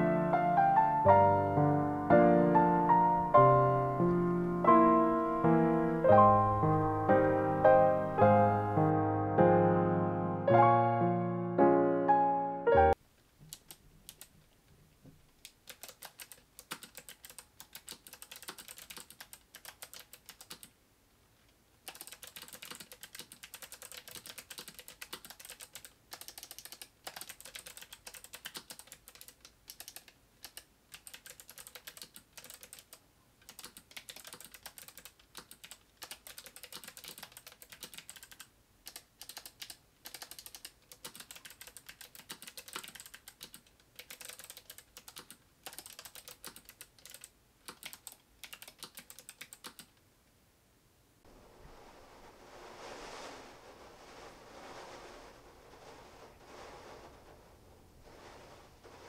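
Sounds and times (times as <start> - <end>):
keyboard typing clicks: 15.4 - 20.7, 21.9 - 49.9.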